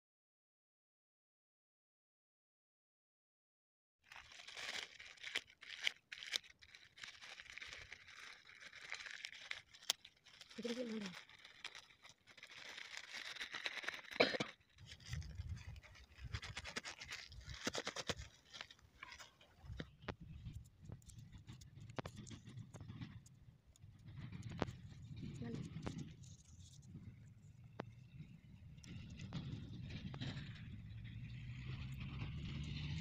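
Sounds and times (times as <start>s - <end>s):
paper packets rustling: 4.1s - 20.2s
low rumbling: 26.9s - 33.0s.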